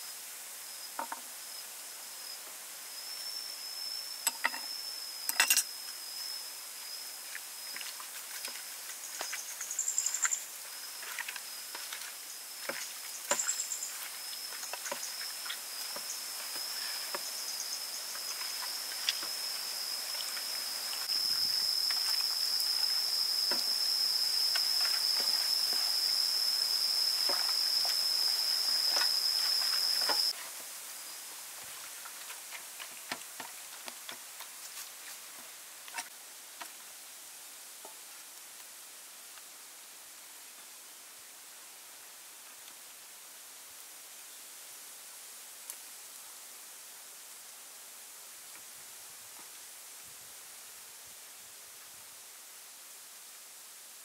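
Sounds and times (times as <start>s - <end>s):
high-pitched insect drone: 0.7s - 30.4s.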